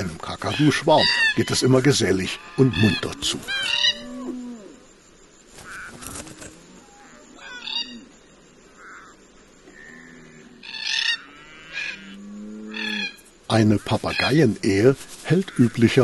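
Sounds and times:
cockatoos calling: 0.0 - 16.0
bird wingbeats: 5.4 - 6.8, 13.8 - 16.0.

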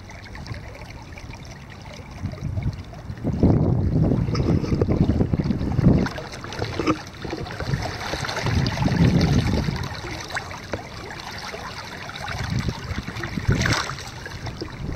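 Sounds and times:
river water running and sloshing: 0.0 - 14.9
sharp water splash: 5.7 - 14.9.

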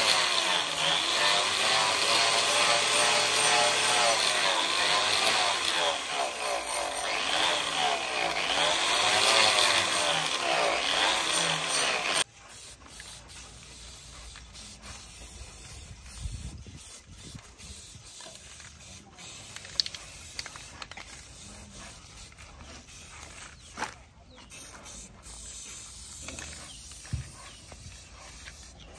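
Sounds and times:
angle grinder grinding steel: 0.0 - 12.3
aerosol spray can hiss: 12.5 - 22.3.

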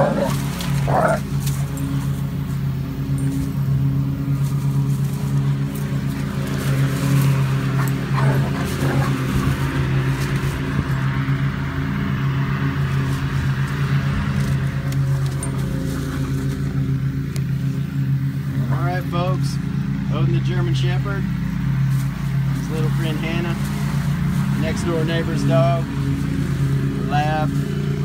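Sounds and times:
dogs play-fighting: 0.0 - 3.4, 6.0 - 10.3
scuffling and rustling: 0.0 - 11.2, 21.8 - 27.8
small engine droning: 0.0 - 28.0.

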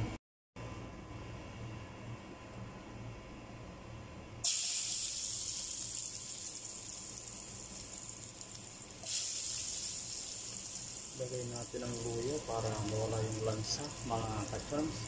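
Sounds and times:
ginger sizzling in hot oil: 4.4 - 15.0.

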